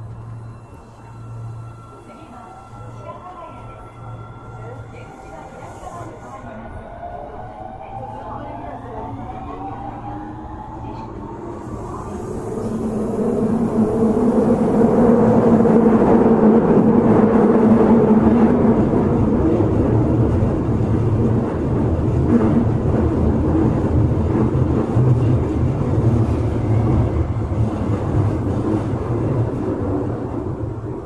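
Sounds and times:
wheels rumbling on rail: 0:08.9 - 0:31.0.

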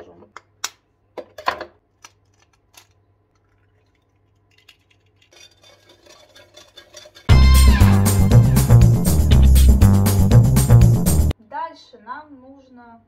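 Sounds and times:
stirring in a steel saucepan: 0:05.3 - 0:07.3
background music with beat: 0:07.3 - 0:11.3.

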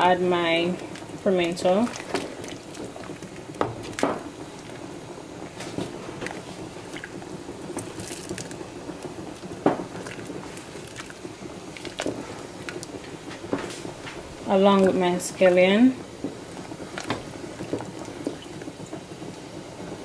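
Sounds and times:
thick soup squelching as stirred: 0:00.8 - 0:04.8, 0:05.4 - 0:14.2.

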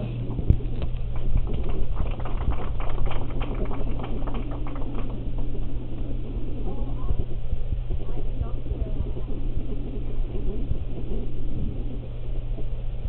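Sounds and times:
steady low hum: 0:00.0 - 0:13.0
people applauding: 0:01.1 - 0:05.7.

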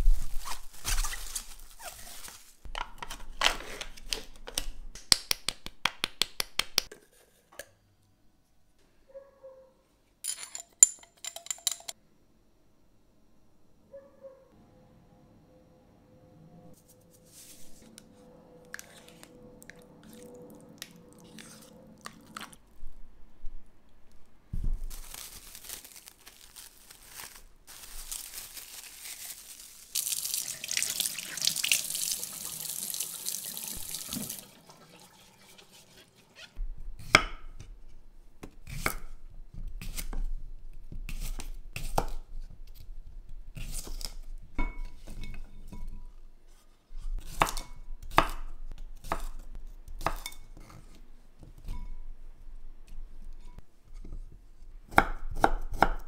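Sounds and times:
tap water running into sink: 0:30.0 - 0:35.6.

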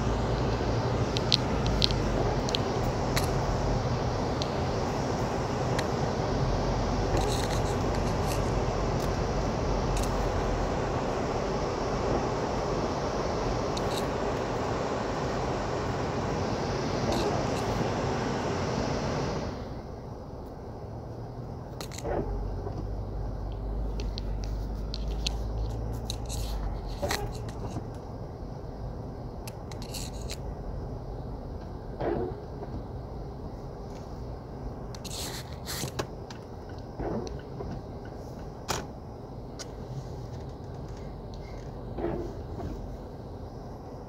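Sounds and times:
low vehicle engine rumble: 0:00.0 - 0:44.0
steady background hiss: 0:00.0 - 0:44.0
short clicks and scrapes: 0:07.2 - 0:09.2, 0:24.0 - 0:27.8, 0:29.5 - 0:30.4, 0:35.0 - 0:36.1.

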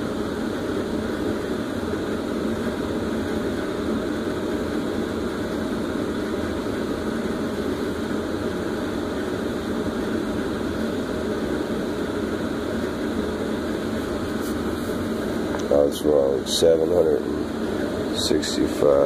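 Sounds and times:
air handler blower running: 0:00.0 - 0:19.0
man talking: 0:15.6 - 0:17.3, 0:18.1 - 0:19.0.

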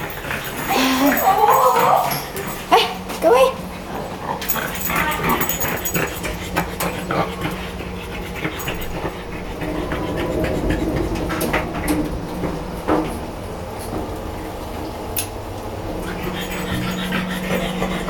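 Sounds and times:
dog whimpering: 0:00.0 - 0:11.0, 0:16.0 - 0:18.0
steady low hum: 0:00.0 - 0:18.0.

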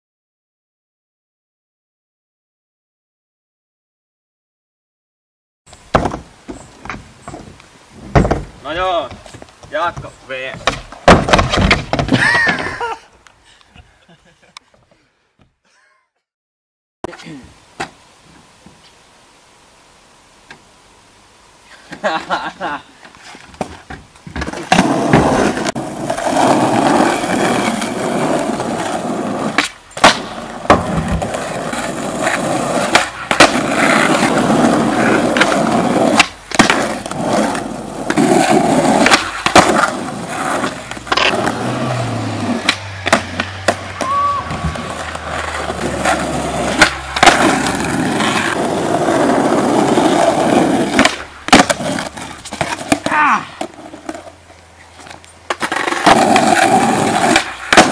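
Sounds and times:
skateboard tail popping clacks: 0:05.7 - 0:12.7, 0:29.5 - 0:54.3, 0:55.0 - 0:57.9
skateboard slapping the ground: 0:05.8 - 0:12.8, 0:23.1 - 0:54.4, 0:55.0 - 0:57.9
skateboard wheels rumbling on asphalt: 0:05.8 - 0:13.0, 0:21.8 - 0:57.9.

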